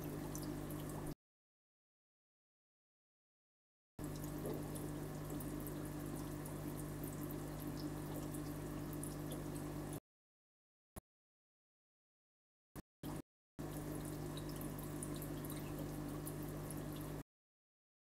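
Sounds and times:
water trickling and dripping: 0.0s - 1.2s, 4.0s - 10.0s, 13.6s - 17.2s
steady low hum: 4.0s - 10.0s.

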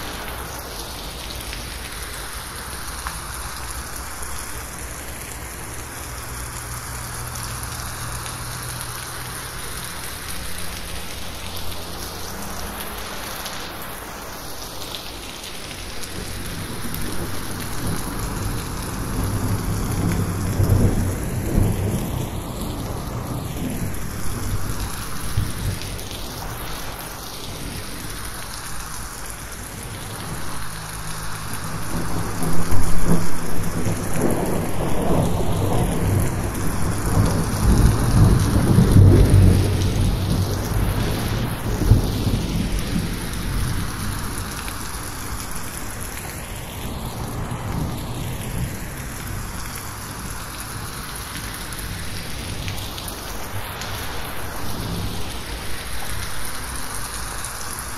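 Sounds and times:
heavy rain on a roof: 0.0s - 57.9s
thunder rumbling: 15.8s - 28.4s, 30.0s - 56.3s.

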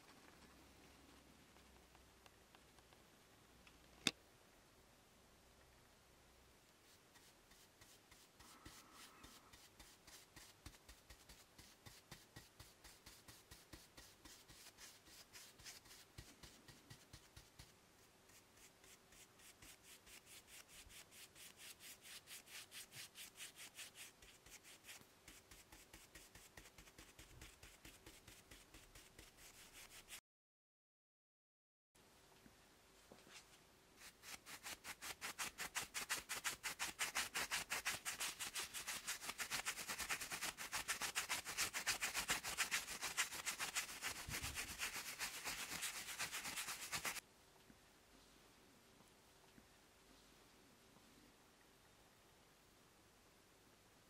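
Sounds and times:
brush scrubbing cast iron: 34.6s - 47.2s.

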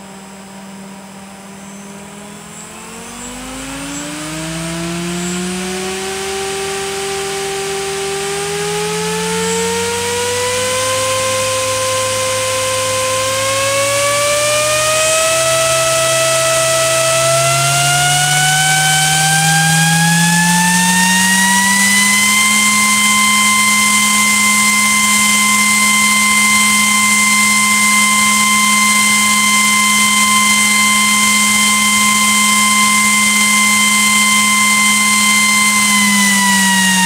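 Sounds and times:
fan whine rising in pitch: 0.0s - 37.0s.

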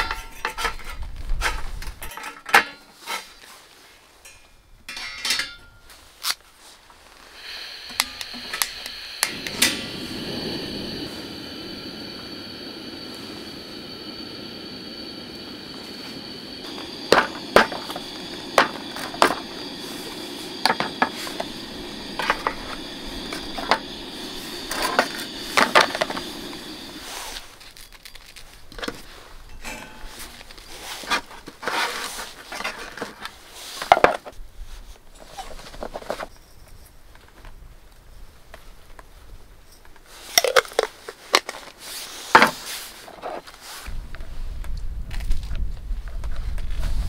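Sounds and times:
gas stove burner hissing: 7.0s - 32.5s.

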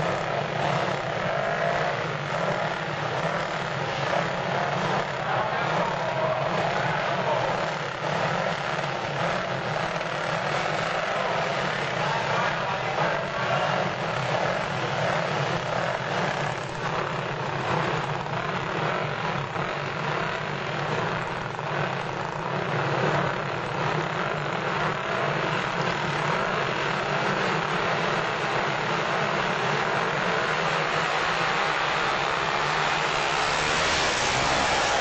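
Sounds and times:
racing motorcycle engines droning: 0.0s - 35.0s.

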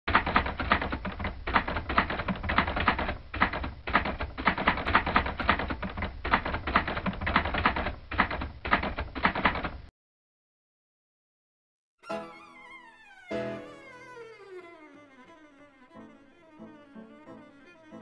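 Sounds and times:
typewriter keys clacking: 0.1s - 9.8s.

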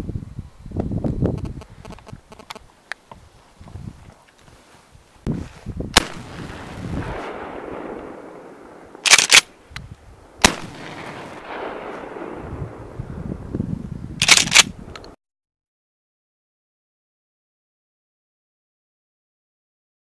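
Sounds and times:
shotgun shots with echo: 6.0s - 9.5s, 10.4s - 12.9s
shotgun pump racking: 9.0s - 9.5s, 14.2s - 15.1s.

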